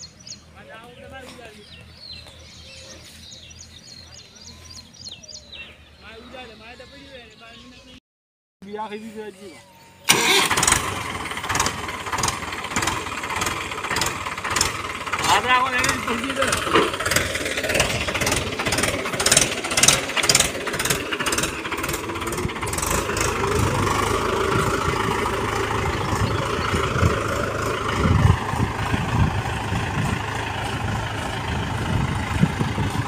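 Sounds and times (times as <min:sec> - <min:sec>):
tractor diesel engine under load: 0:00.0 - 0:07.3, 0:10.1 - 0:33.0.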